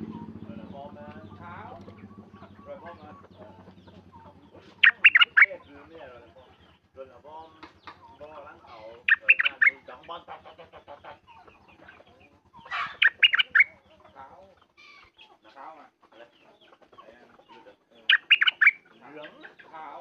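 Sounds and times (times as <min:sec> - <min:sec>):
bulbul singing loud phrase: 0:00.0 - 0:05.9, 0:08.1 - 0:10.1, 0:12.7 - 0:13.9, 0:18.0 - 0:19.4
faint calls of other birds: 0:00.0 - 0:20.0.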